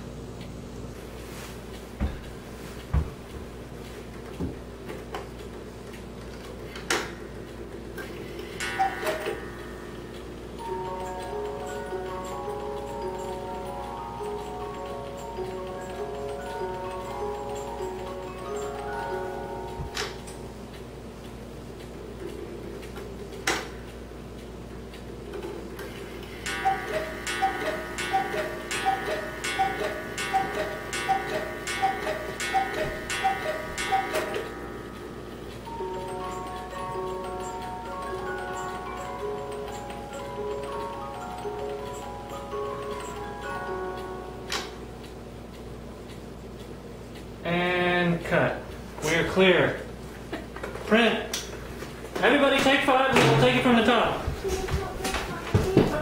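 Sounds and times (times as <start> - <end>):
clock movement clicks: 1.6 - 56.0
clock ticking: 7.2 - 25.5, 26.4 - 49.8
music box tune: 8.2 - 21.9, 26.3 - 45.8.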